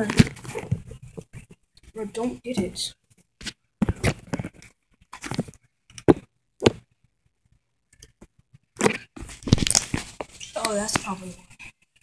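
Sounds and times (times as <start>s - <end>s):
phone handling rustles and bumps: 3.4s - 6.9s, 8.2s - 11.1s.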